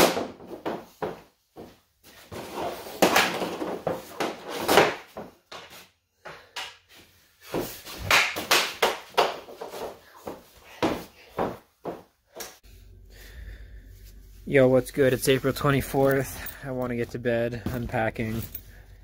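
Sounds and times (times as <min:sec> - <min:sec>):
puck hitting net and backstop: 0:00.0 - 0:12.6.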